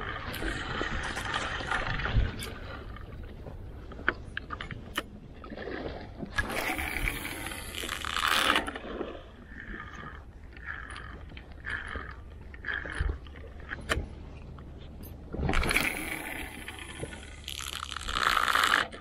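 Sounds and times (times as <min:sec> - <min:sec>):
sea noise: 0:00.0 - 0:19.0
wind: 0:00.0 - 0:19.0.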